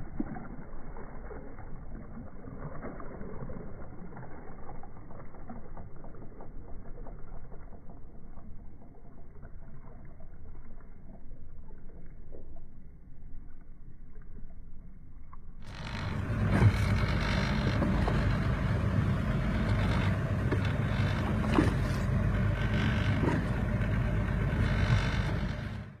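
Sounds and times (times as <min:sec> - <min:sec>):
boat engine running: 0:15.2 - 0:26.0
rushing wind and water: 0:15.7 - 0:25.9.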